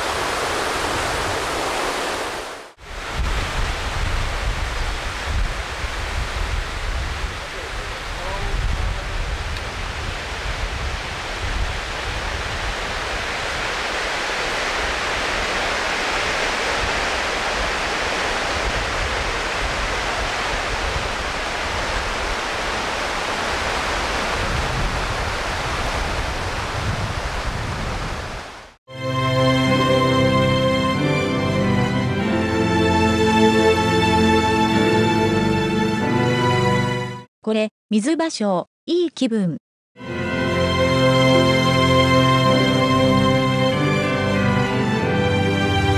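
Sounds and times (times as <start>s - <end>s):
river water flowing: 0.0s - 6.2s, 11.2s - 26.7s
wind rumble on microphone: 2.8s - 28.7s
music: 28.9s - 37.3s, 40.0s - 45.9s.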